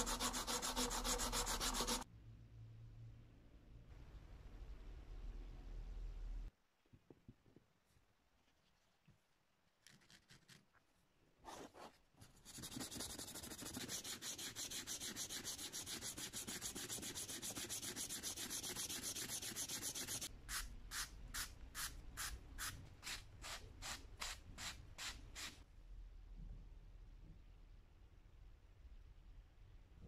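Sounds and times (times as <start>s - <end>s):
sandpaper rubbing on plastic: 0.0s - 2.0s, 12.4s - 20.3s.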